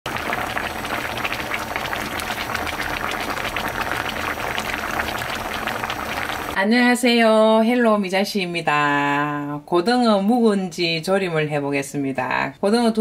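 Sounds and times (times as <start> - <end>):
stew bubbling: 0.1 - 6.6.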